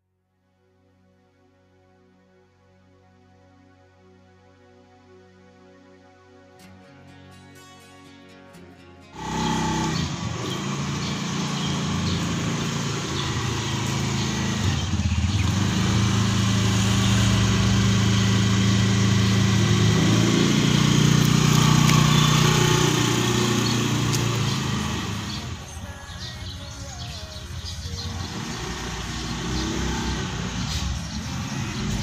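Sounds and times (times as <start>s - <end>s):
motor scooter engine: 9.2s - 26.2s, 27.6s - 32.0s.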